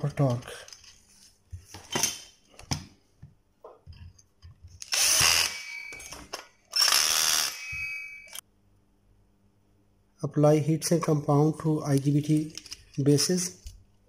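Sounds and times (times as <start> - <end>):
cordless drill motor running: 4.8 - 6.1, 6.7 - 7.7.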